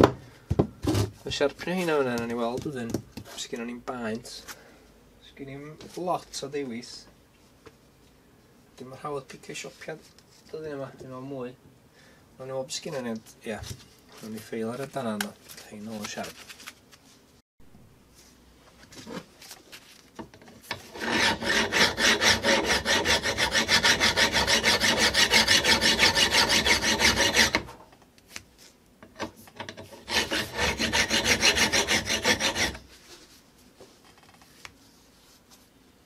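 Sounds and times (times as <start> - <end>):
hand file rasping on steel: 20.7 - 27.8, 29.8 - 32.8.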